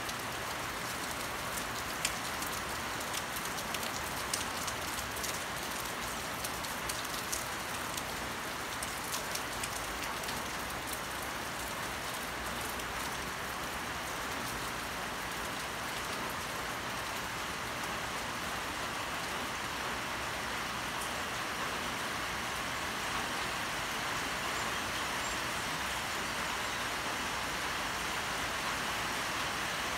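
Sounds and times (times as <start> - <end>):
light rain falling: 0.0 - 29.9
sharp drip ticks: 1.1 - 7.5.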